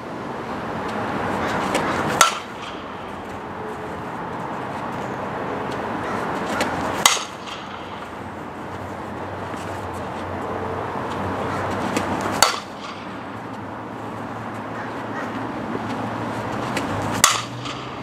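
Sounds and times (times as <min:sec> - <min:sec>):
outdoor background noise: 0:00.0 - 0:18.0
bat cracking softball: 0:01.5 - 0:03.1, 0:06.4 - 0:08.3, 0:11.9 - 0:13.3, 0:16.6 - 0:18.0.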